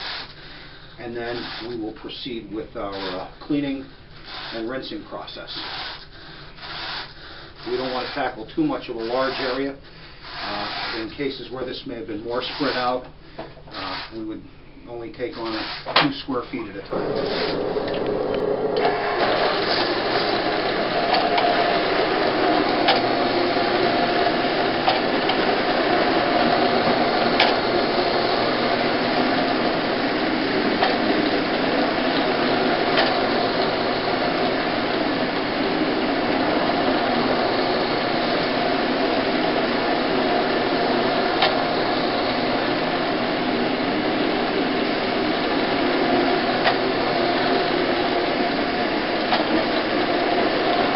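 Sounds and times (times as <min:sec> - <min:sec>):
carpet extraction machine running: 0:16.9 - 0:50.9.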